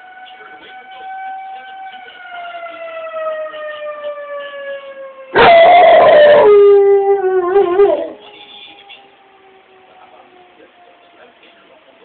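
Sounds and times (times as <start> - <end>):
fire siren winding down: 0.0 - 11.6
dog howling: 5.4 - 8.2.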